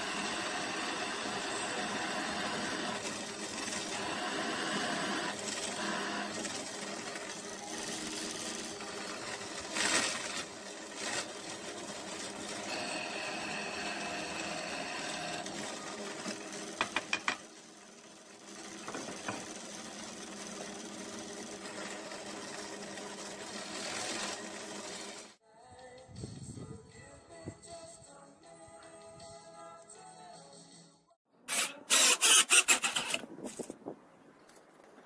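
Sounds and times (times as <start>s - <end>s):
drill press boring wood: 0.0s - 25.4s, 31.5s - 33.3s.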